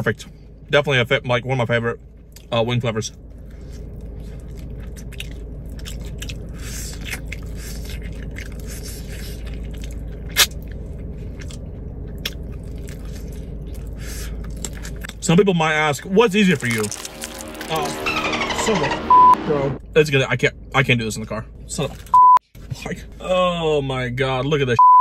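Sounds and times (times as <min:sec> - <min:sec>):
steady low hum: 0:00.0 - 0:24.7
wet chewing and crunching: 0:02.0 - 0:02.6, 0:03.2 - 0:15.4, 0:16.0 - 0:17.8, 0:21.7 - 0:22.8.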